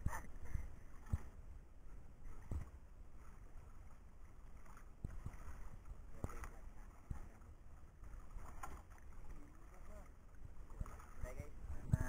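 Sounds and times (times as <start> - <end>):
water lapping around boat: 0.0 - 12.0
wind on microphone: 10.4 - 12.0.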